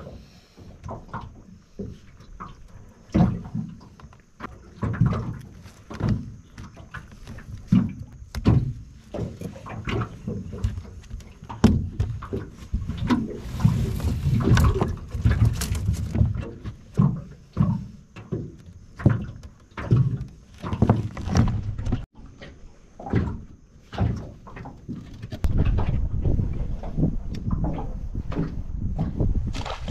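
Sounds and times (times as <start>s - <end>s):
knocks and thumps on boat deck: 0.0s - 22.4s.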